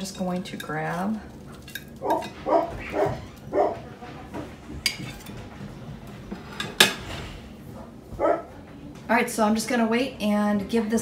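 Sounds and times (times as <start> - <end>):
dog barking: 2.0 - 3.8, 8.2 - 8.5.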